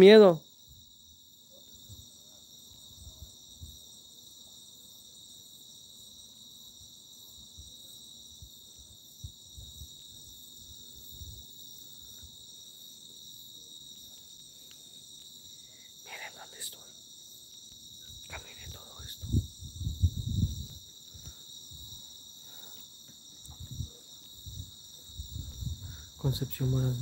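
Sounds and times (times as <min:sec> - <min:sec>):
crickets chirring: 0:00.0 - 0:27.0
faint low thumps: 0:24.5 - 0:27.0.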